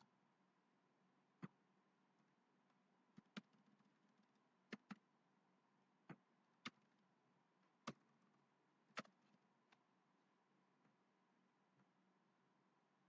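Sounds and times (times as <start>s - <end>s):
keyboard and mouse clicks: 3.2s - 3.9s, 4.7s - 5.1s, 8.9s - 9.8s.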